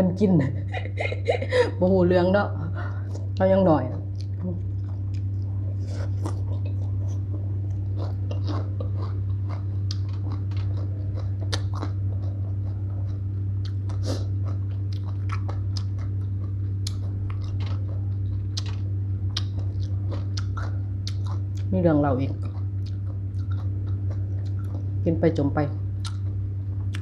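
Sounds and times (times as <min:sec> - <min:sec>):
steady low hum: 0:00.0 - 0:27.0
wet crunchy chewing: 0:03.1 - 0:21.7, 0:22.3 - 0:25.0, 0:26.0 - 0:27.0.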